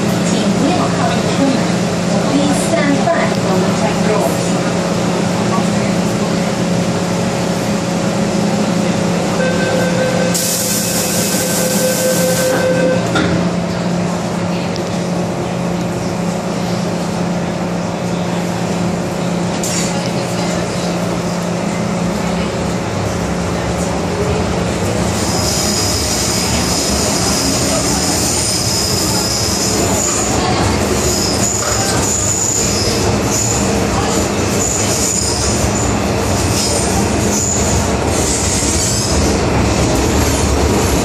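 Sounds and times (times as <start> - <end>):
door-closing warning tone: 9.4 - 13.4.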